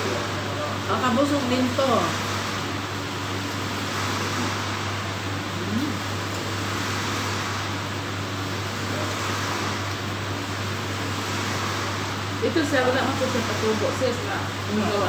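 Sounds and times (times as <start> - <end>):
steady mechanical hum: 0.0 - 15.0.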